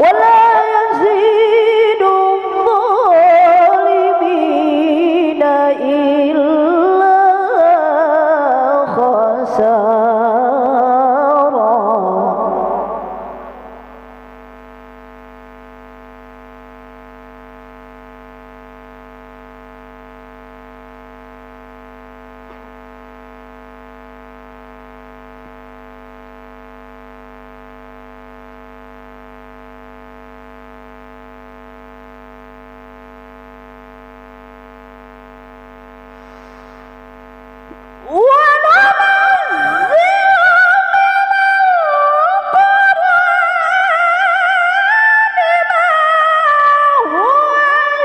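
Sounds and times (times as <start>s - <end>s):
woman reciting: 0.0s - 13.6s, 38.0s - 48.0s
electrical hum: 0.0s - 48.0s.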